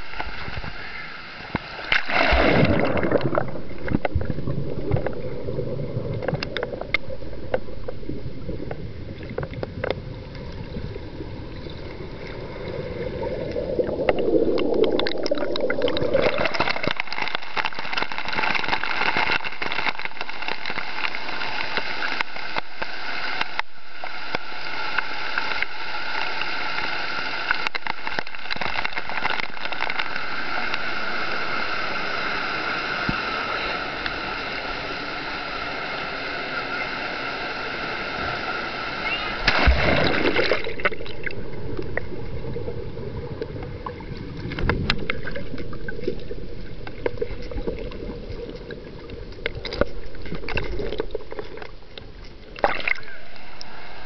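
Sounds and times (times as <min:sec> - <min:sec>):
underwater splash: 0:01.8 - 0:23.0, 0:39.0 - 0:53.6
muffled underwater gurgling: 0:02.0 - 0:22.4.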